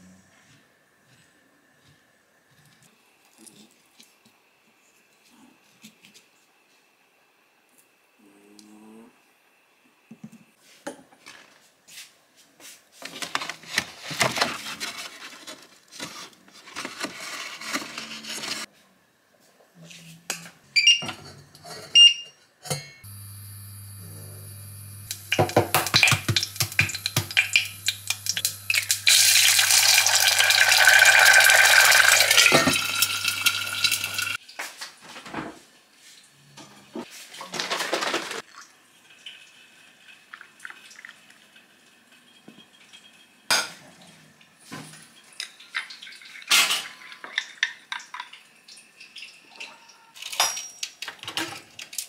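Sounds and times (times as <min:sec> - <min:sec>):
induction hob humming: 0:23.0 - 0:34.4
water boiling in saucepan: 0:23.1 - 0:34.4, 0:38.4 - 0:43.5
kitchenware clinks and knocks: 0:49.5 - 0:52.0.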